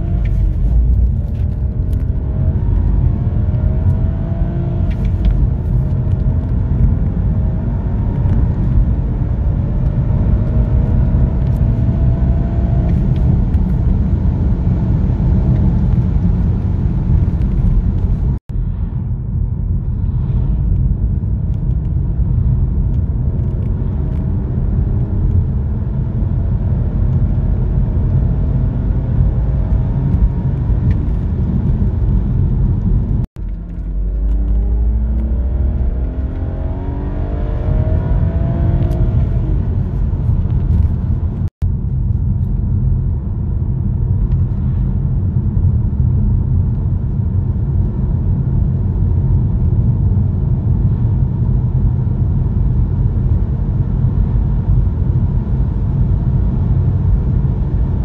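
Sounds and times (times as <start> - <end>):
car engine accelerating: 0.0 - 18.9, 19.8 - 41.5
road and wind rumble: 0.0 - 58.0.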